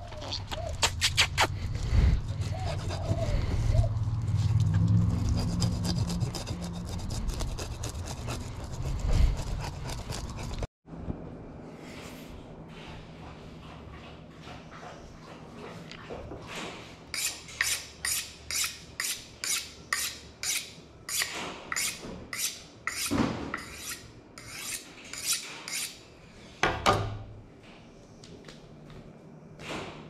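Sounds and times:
knife scraping on sharpening steel: 17.1 - 26.0.

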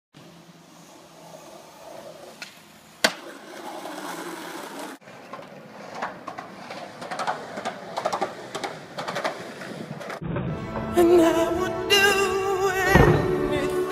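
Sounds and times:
skateboard wheels rolling: 0.2 - 10.9
skateboard clack: 2.0 - 10.2.

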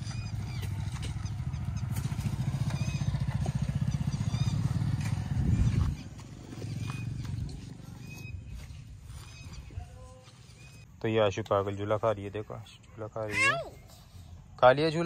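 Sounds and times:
motorcycle engine passing: 0.0 - 9.6.

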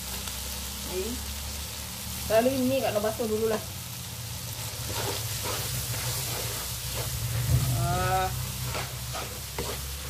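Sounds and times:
noodles sizzling in a wok: 0.0 - 10.0
spatula scraping a wok: 4.2 - 10.0.

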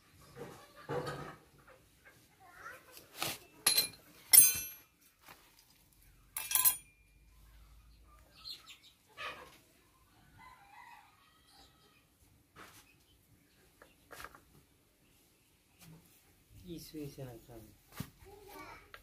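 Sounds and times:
metal gears clinking: 3.7 - 4.9, 6.4 - 7.0.

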